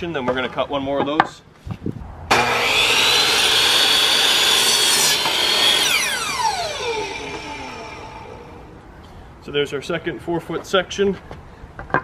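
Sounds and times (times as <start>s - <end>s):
miter saw whining through wood: 2.3s - 8.8s
saw motor winding down: 2.3s - 8.8s.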